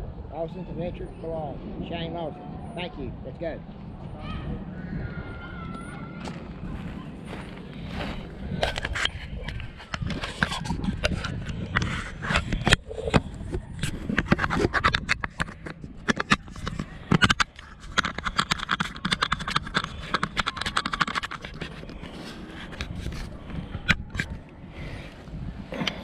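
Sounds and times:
camera handling noise: 0:08.6 - 0:24.6.

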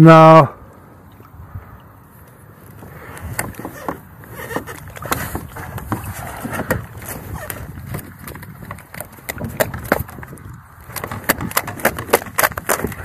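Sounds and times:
knocks and rustles on boat deck: 0:02.7 - 0:13.0.

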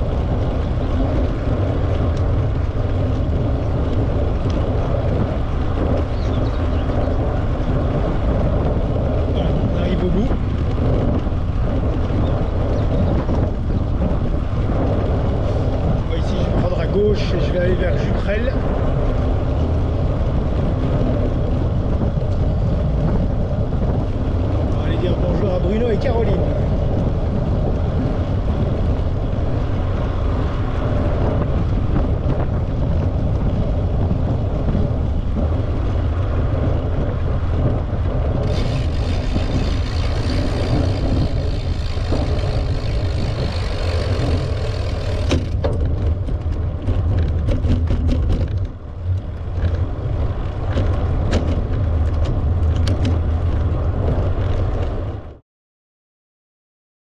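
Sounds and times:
wind rumbling on microphone: 0:00.0 - 0:55.4
tyre rolling noise: 0:37.6 - 0:55.2.

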